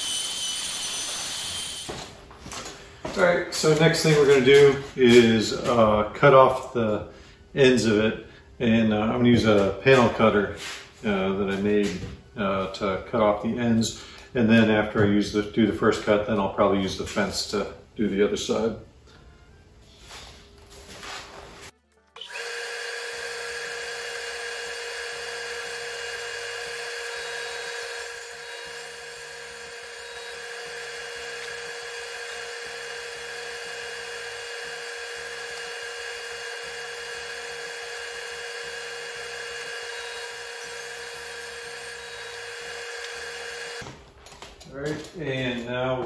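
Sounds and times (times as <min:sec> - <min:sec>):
table saw whining: 0:00.0 - 0:02.2, 0:22.1 - 0:43.9.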